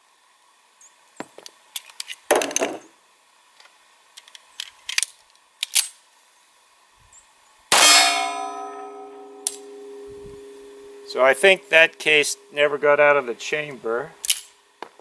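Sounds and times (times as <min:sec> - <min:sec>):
pistol handling clicks: 0:04.2 - 0:06.0, 0:14.2 - 0:14.5
steel target plate ringing: 0:07.7 - 0:13.8.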